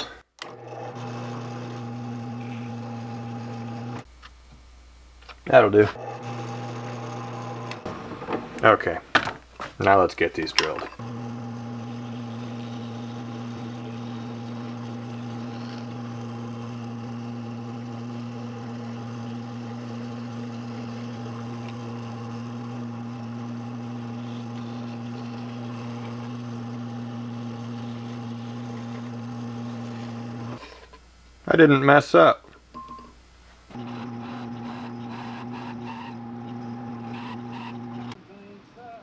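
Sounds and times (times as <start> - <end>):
drill press motor humming: 0.4 - 4.1, 5.5 - 8.7, 11.0 - 30.6, 33.7 - 38.2.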